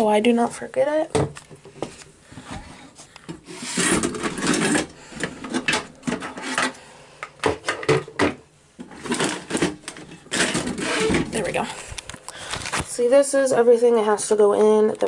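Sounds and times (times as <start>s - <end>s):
small items knocking and clicking: 3.2s - 12.9s.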